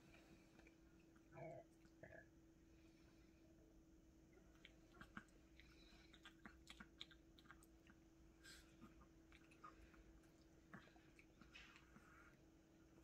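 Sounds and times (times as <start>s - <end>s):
faint steady hum: 0.0s - 13.0s
dogs chewing fruit: 4.4s - 12.4s.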